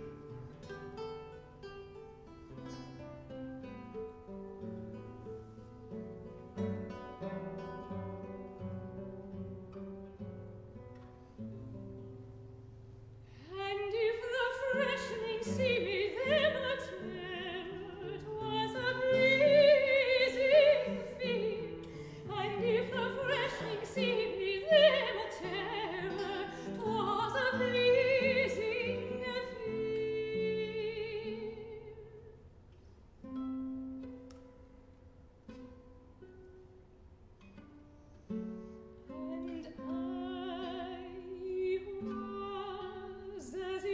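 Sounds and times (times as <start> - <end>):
plucked guitar: 0.0 - 43.9
soprano singing with vibrato: 13.4 - 32.4, 39.1 - 43.9.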